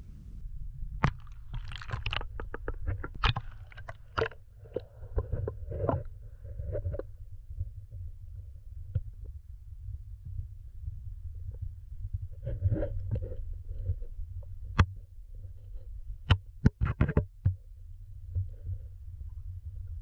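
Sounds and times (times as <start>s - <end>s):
underwater rumble of moving water: 0.0s - 16.6s, 17.6s - 20.0s
bubbling gurgles: 1.0s - 6.1s.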